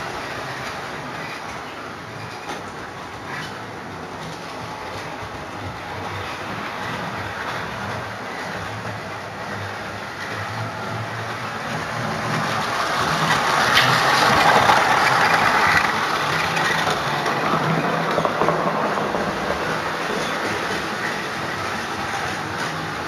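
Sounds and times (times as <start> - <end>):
model train rumbling on track: 0.0 - 23.0
small clicks of wheels: 12.3 - 22.9.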